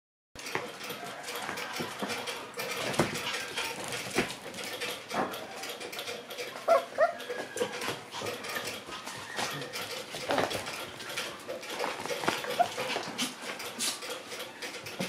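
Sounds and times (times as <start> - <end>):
paws and claws clicking on hard floor: 0.4 - 15.0
puppy yips: 6.6 - 7.4.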